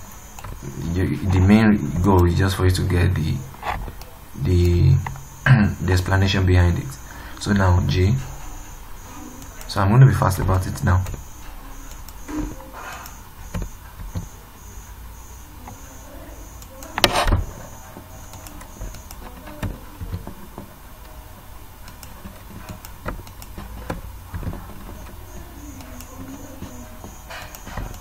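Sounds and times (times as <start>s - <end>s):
steady low hum: 0.0s - 28.0s
computer mouse clicks: 0.1s - 0.6s, 9.3s - 9.8s, 10.4s - 14.4s, 16.6s - 21.2s, 21.8s - 28.0s.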